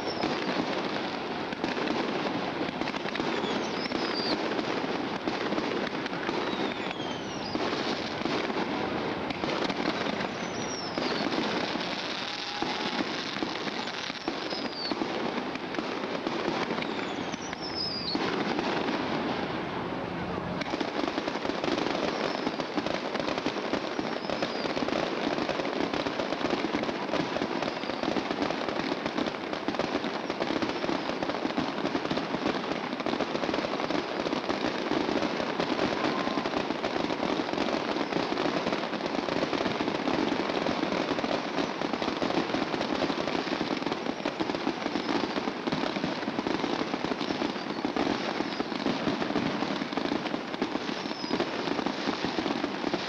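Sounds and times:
firework whistle falling: 0.0 - 0.7, 2.9 - 4.5, 5.9 - 15.0, 16.6 - 19.0, 21.9 - 22.7, 23.9 - 24.8, 34.8 - 37.2, 50.8 - 51.5
fireworks crackling and popping: 0.0 - 53.0.

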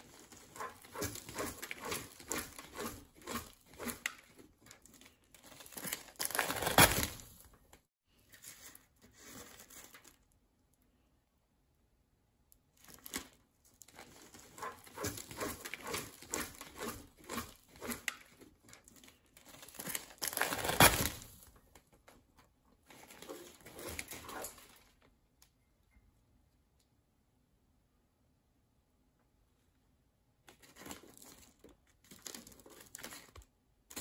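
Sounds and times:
parrot scraping and pecking: 0.0 - 6.1, 13.9 - 21.3
paper crinkling and rustling: 0.0 - 10.4, 12.8 - 25.1, 30.5 - 34.0.

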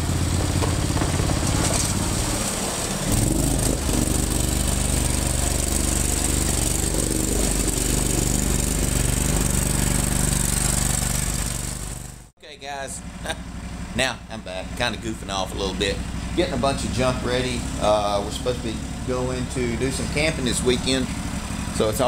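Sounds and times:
water splashing around tires: 0.0 - 12.3
mower engine running under load: 0.0 - 22.0.

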